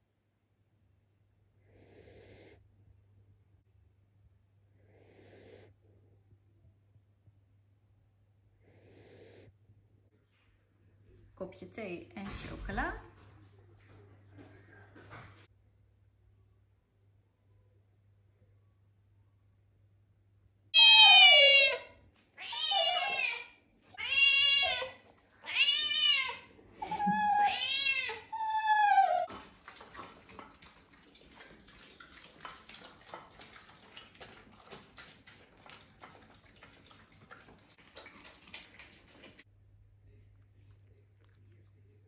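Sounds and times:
cat meowing: 20.8s - 29.3s.

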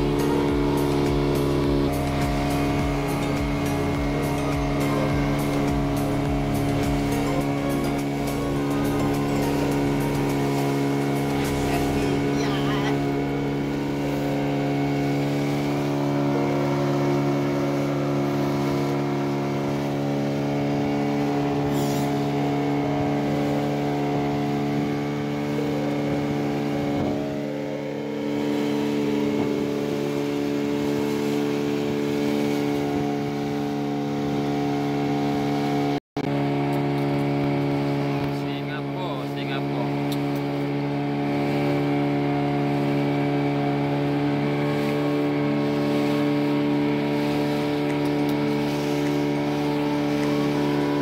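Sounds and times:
boat engine droning: 0.0s - 51.0s.

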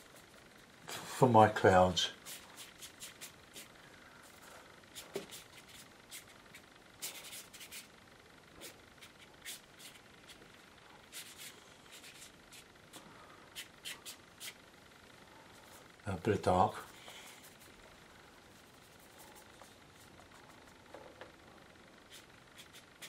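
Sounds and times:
brush scratching on paper: 2.1s - 3.8s, 4.9s - 7.9s, 8.6s - 14.6s, 16.8s - 17.8s, 18.5s - 20.8s, 22.0s - 23.0s.

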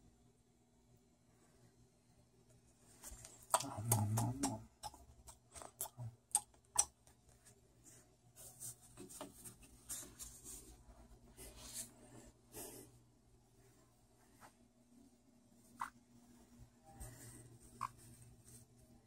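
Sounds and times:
soft scratchy rustling: 7.2s - 12.4s, 13.4s - 19.0s.

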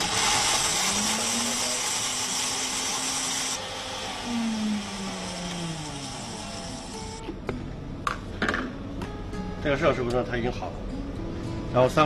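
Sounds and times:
blender grinding frozen food: 0.0s - 7.2s.

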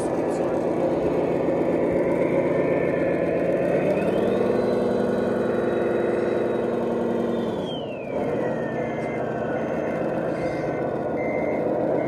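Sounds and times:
simulated diesel engine: 0.0s - 12.0s
steady whir: 0.0s - 12.0s
reversing beeps: 3.6s - 12.0s.

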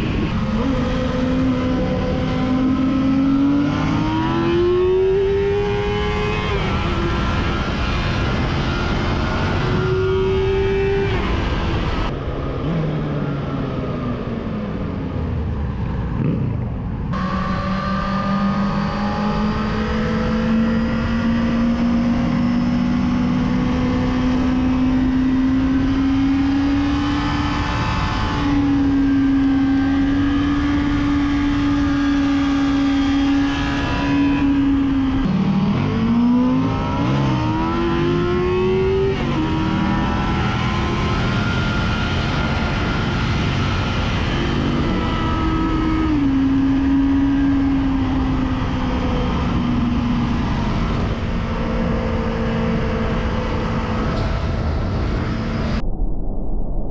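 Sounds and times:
motorcycle engine at high revs: 0.0s - 55.8s
wind rush: 49.8s - 56.9s.

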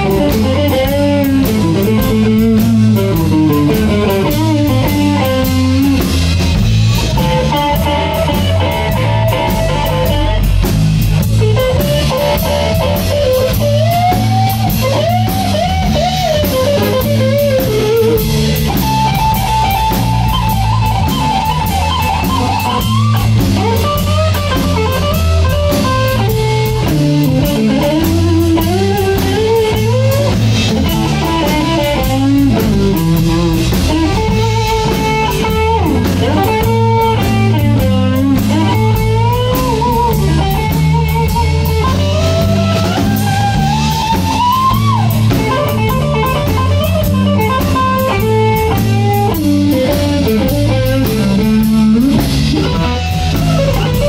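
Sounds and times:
electric blues band playing: 0.0s - 54.0s
electric guitar lead line bending: 0.0s - 54.0s.

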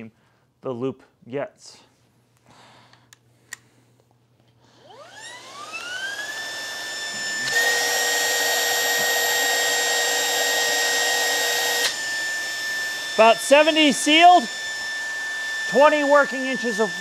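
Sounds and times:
vacuum motor whining: 4.8s - 17.0s.

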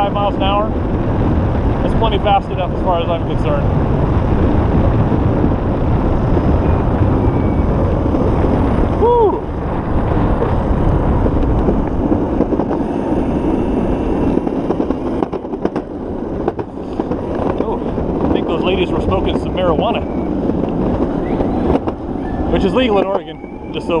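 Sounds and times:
wheels rolling on pavement: 0.0s - 24.0s
wind on microphone: 0.0s - 24.0s
wheels clicking on bridge deck: 1.7s - 24.0s.

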